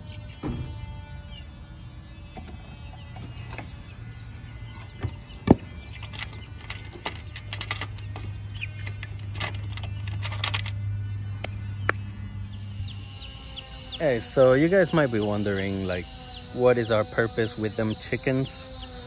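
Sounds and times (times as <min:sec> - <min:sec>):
chicks peeping: 0:00.0 - 0:10.0, 0:10.8 - 0:19.0
low hum: 0:00.0 - 0:19.0
clicking and rattling: 0:05.5 - 0:10.8.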